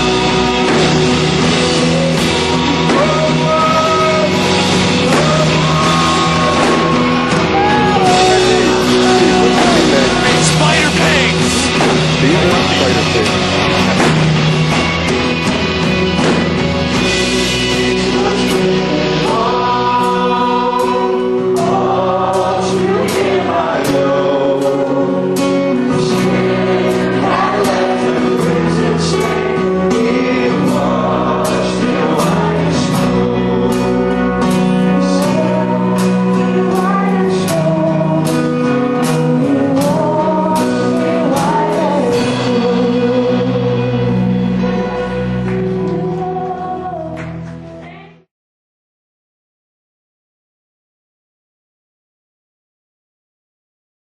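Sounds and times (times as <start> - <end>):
song with vocals over beat: 2.9 - 13.4, 18.0 - 47.8.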